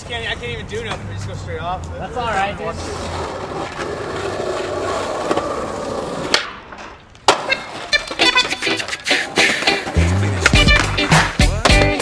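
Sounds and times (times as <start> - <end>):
skateboard wheels rolling on asphalt: 0.0 - 12.0
skateboard click: 6.2 - 12.0.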